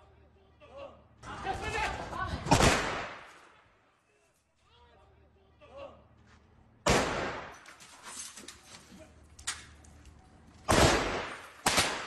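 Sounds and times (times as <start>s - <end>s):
gunshots echoing: 2.4s - 3.5s, 6.8s - 7.6s, 10.7s - 12.0s.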